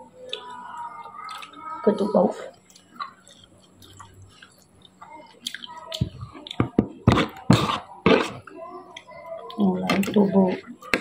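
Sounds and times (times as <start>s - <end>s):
chewing with wet clicks and smacks: 0.2s - 1.8s, 2.5s - 6.7s, 8.4s - 10.9s.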